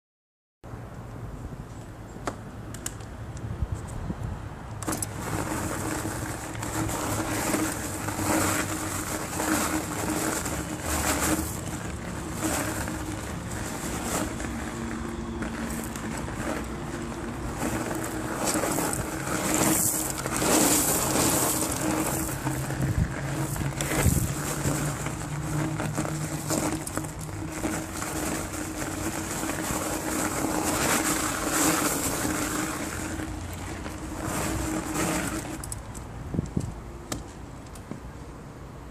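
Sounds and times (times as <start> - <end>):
tyre crunching on gravel: 4.8 - 36.1
electric motor hum: 5.0 - 35.9.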